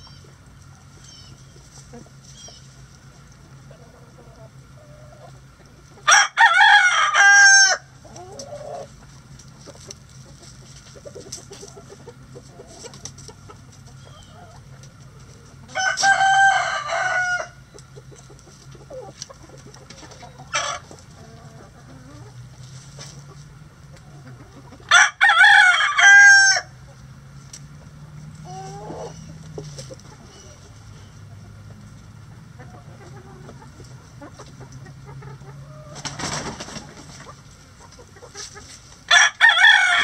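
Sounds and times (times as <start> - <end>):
hens clucking: 0.0 - 40.0
rooster crowing: 6.1 - 7.9, 15.7 - 17.6, 24.9 - 26.7, 39.1 - 40.0.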